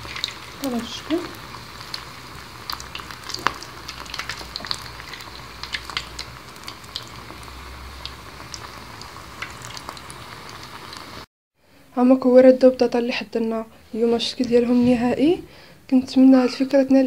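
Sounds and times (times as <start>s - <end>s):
croquettes deep-frying in oil: 0.0s - 11.3s.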